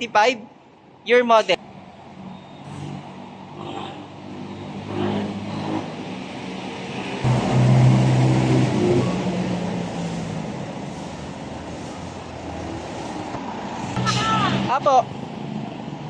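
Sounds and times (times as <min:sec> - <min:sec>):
diesel engine pulling away: 0:04.2 - 0:14.0.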